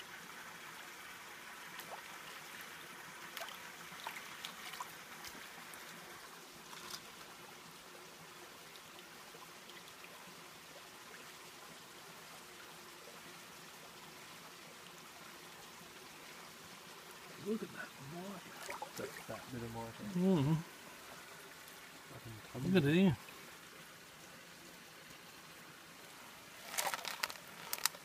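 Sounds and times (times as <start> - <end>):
small splashes: 3.2 - 6.0, 6.7 - 7.3, 18.2 - 20.2, 26.5 - 28.0.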